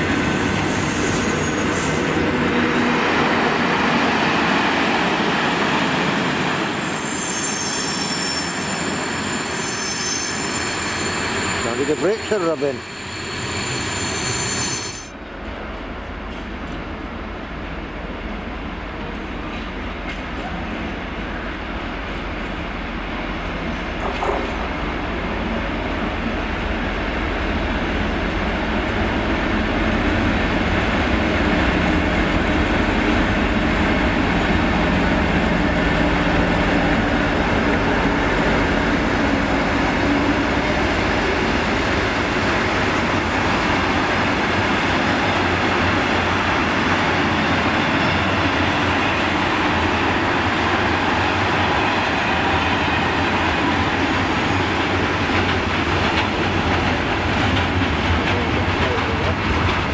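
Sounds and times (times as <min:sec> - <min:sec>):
diesel locomotive engine: 0:00.0 - 0:59.9
train wagons clattering: 0:54.8 - 0:59.9.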